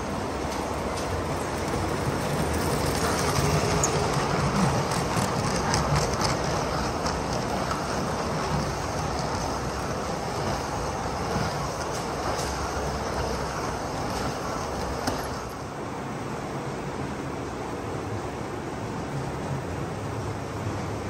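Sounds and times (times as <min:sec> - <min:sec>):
model train wheels rumbling: 0:00.0 - 0:15.8.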